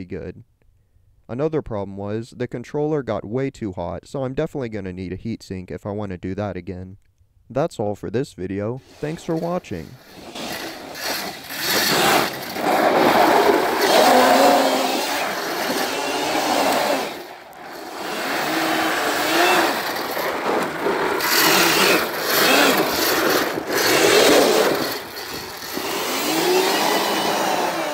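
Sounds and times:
electric motor whining: 0:08.9 - 0:27.9
tires spraying gravel: 0:08.9 - 0:27.9.

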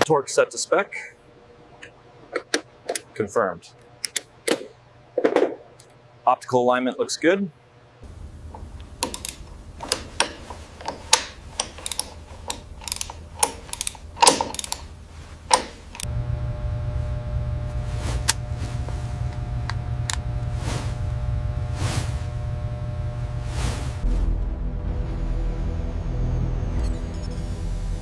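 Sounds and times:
low hum: 0:08.0 - 0:28.0
mechanical clicks and clacks: 0:08.4 - 0:16.1
droning music with held tones: 0:16.0 - 0:28.0.

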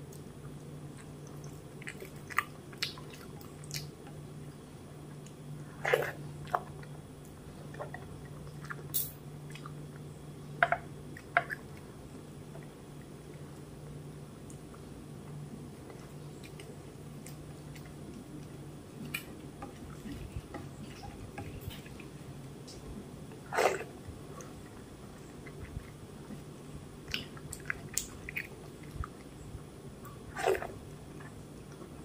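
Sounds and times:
fingers squelching wet food: 0:00.0 - 0:04.3, 0:15.6 - 0:29.4
faint low hum: 0:00.0 - 0:32.0.

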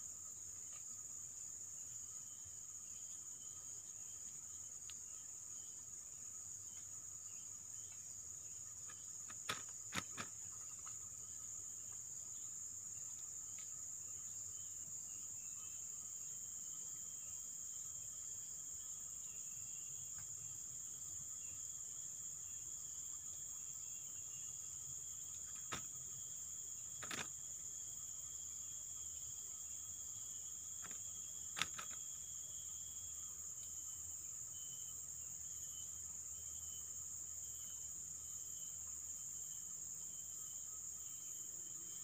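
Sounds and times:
insects droning: 0:00.0 - 0:42.0.

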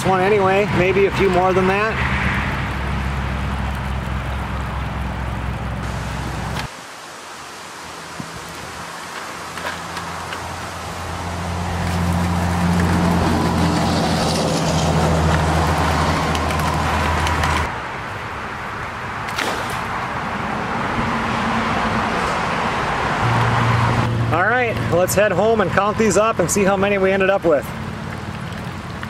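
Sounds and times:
steady rush of noise: 0:00.0 - 0:29.0
motor engine low hum: 0:02.6 - 0:06.7.

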